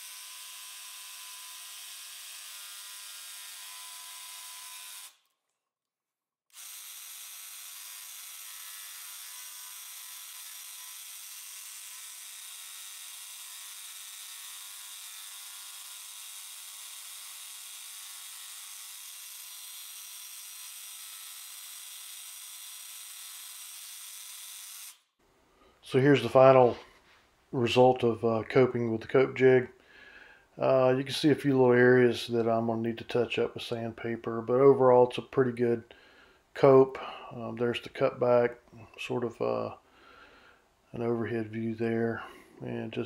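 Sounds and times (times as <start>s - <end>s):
jigsaw cutting wood: 0.0s - 5.3s, 6.5s - 25.0s.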